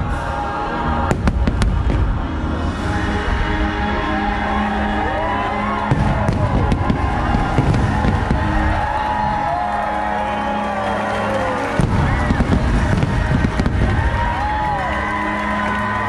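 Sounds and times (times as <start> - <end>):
low crowd murmur: 0.0 - 16.0
music over loudspeakers: 0.0 - 16.0
fireworks bangs: 5.8 - 9.4, 11.6 - 14.8.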